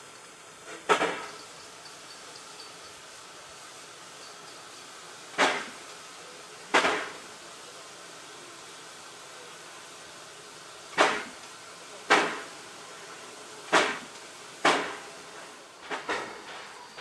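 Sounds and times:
steady steam hiss: 0.0s - 17.0s
steam locomotive chuffs: 0.0s - 17.0s.

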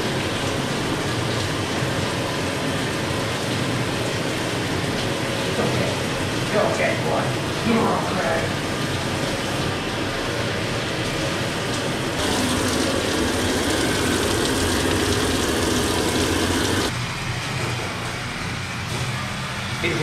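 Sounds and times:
hose sprayer hissing: 12.2s - 16.9s.

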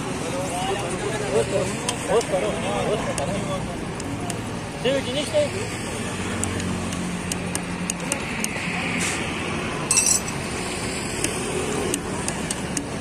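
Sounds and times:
light metallic clinks: 9.9s - 10.4s
metallic clatter: 9.9s - 10.4s.

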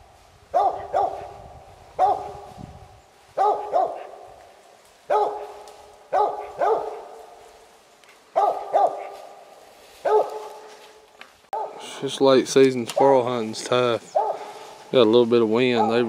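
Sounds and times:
dog barking with echo: 0.5s - 1.4s, 2.0s - 2.5s, 3.4s - 4.4s, 5.1s - 7.4s, 8.3s - 9.4s, 10.0s - 10.7s, 11.6s - 11.9s, 14.1s - 14.6s, 15.6s - 16.0s.

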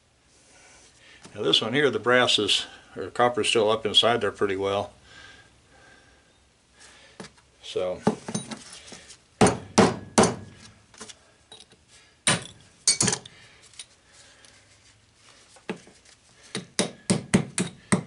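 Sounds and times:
hammer striking metal punch: 9.4s - 10.5s, 12.3s - 13.2s, 16.6s - 18.0s.

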